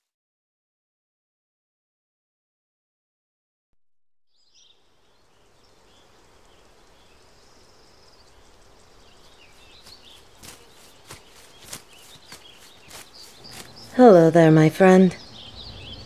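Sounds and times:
birds chirping: 4.3 - 16.0
soft steady rushing: 5.6 - 14.2
footsteps: 9.5 - 14.0.

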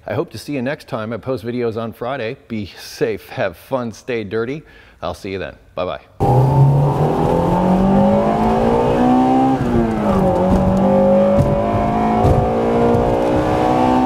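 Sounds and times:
car engine accelerating: 6.2 - 14.0.

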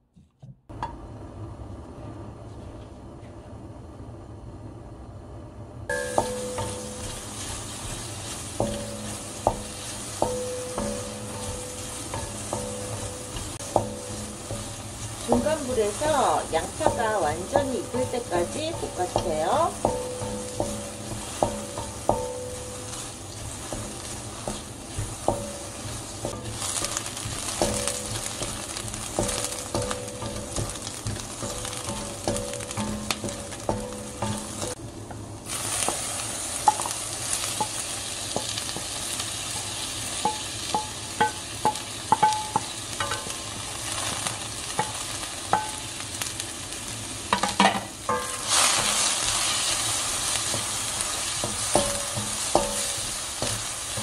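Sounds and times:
spatula knocking pan: 5.9 - 34.8, 36.6 - 36.9, 37.5 - 44.1, 44.7 - 46.0, 47.3 - 54.0
onions sizzling in a frying pan: 5.9 - 54.0.

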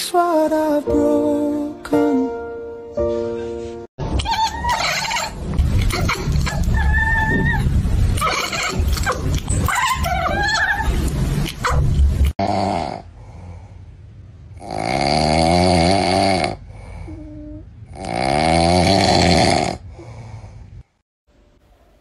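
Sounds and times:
cat snoring: 14.6 - 19.8.

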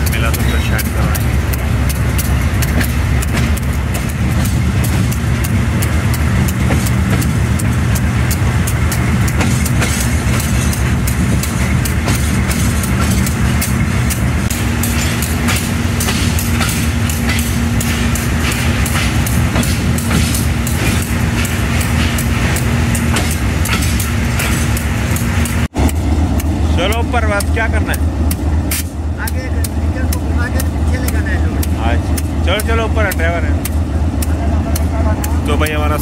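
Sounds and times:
diesel locomotive engine: 0.0 - 36.0
train clicks and knocks: 0.0 - 36.0.

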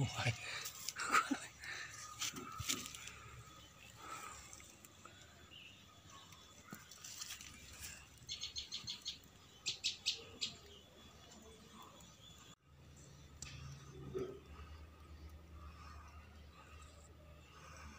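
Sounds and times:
faint outdoor background noise: 0.0 - 17.9
small bird chirping: 5.5 - 12.6.

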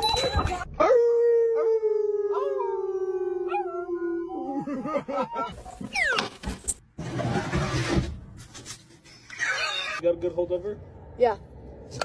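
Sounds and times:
dog and people howling: 0.8 - 5.5
people laughing: 4.5 - 5.6.

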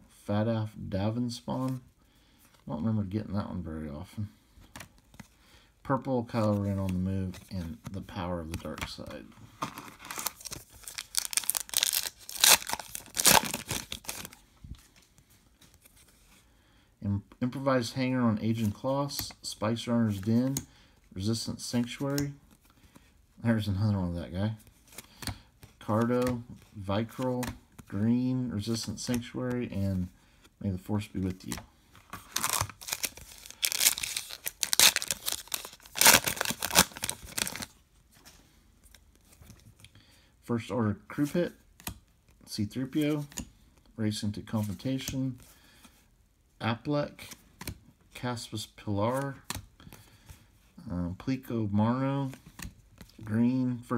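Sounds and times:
card pack wrapper tearing and crinkling: 9.6 - 14.4, 32.1 - 37.8.

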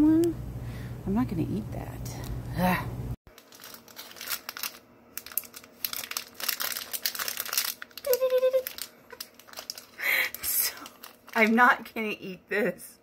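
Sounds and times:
plastic wrapper crinkling: 3.3 - 12.1
person humming: 8.0 - 8.7.

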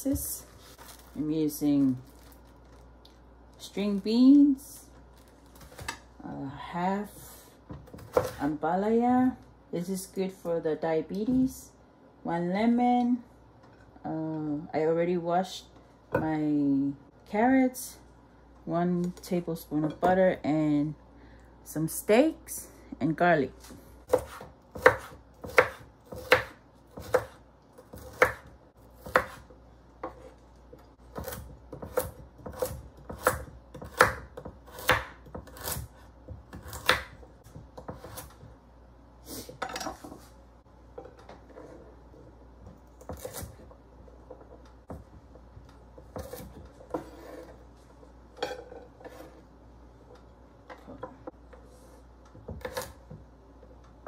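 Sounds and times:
knife chopping on wooden board: 24.1 - 30.3, 31.1 - 38.5, 44.4 - 47.4.

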